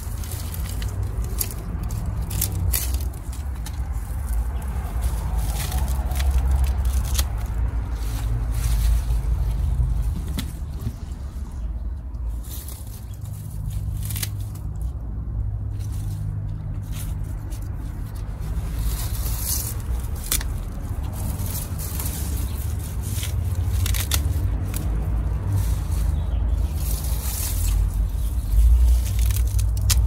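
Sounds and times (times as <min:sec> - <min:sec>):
salad greens snapping: 0:00.0 - 0:07.7, 0:18.2 - 0:30.0
leaf rustles: 0:00.0 - 0:30.0
steady low rumble: 0:00.0 - 0:30.0.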